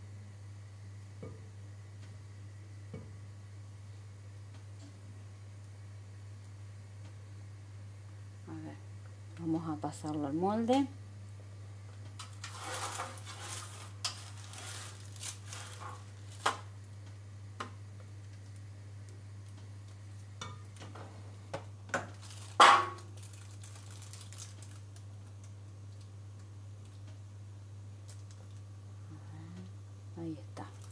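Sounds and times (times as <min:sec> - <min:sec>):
steady low hum: 0:00.0 - 0:30.9
plastic sheeting rustling: 0:12.4 - 0:16.7, 0:22.2 - 0:24.9.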